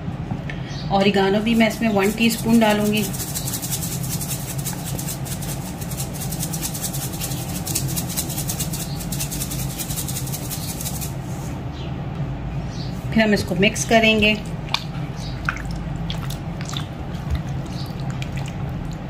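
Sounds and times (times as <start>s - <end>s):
steady low hum: 0.0s - 19.0s
dried herbs rattling in shaker: 1.4s - 11.2s.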